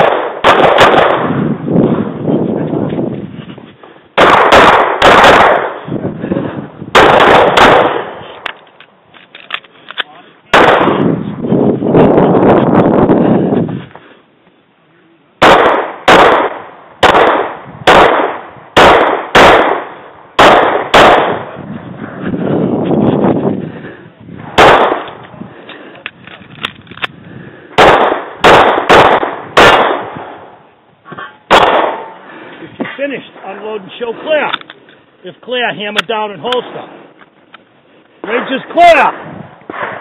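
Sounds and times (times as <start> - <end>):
pistol shots: 0.0 - 1.4, 4.2 - 5.8, 6.9 - 8.5, 10.5 - 11.1, 15.4 - 21.6, 24.5 - 25.2, 27.8 - 30.5, 31.5 - 32.2, 39.1 - 40.0.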